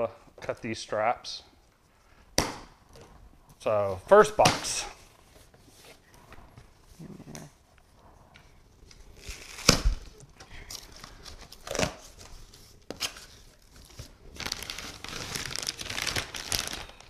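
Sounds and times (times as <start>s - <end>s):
rustling and crinkling: 4.7s - 17.0s
tape and cardboard ripping: 8.9s - 17.0s.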